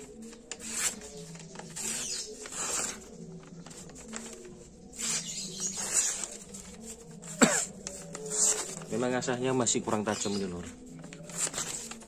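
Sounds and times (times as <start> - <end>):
blade slicing paper: 0.3 - 3.1.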